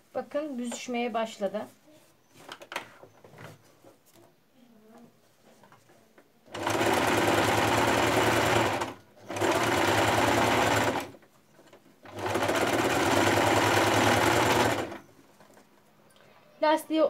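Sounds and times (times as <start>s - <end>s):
electric sewing machine running: 6.5s - 11.2s, 12.1s - 15.0s.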